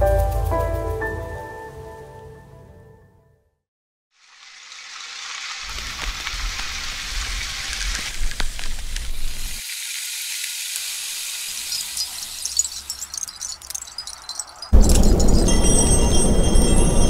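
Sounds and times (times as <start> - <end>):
crackling hiss: 4.2 - 14.7
low rumble: 14.8 - 17.0.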